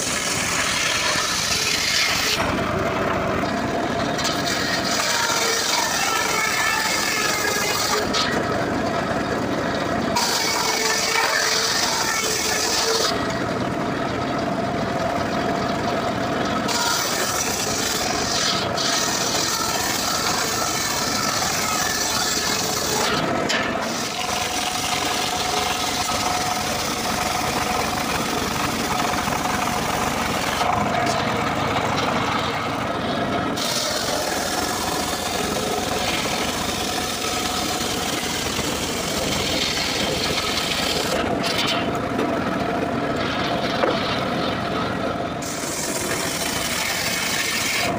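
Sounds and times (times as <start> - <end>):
circular saw cutting wood: 0.0 - 47.9.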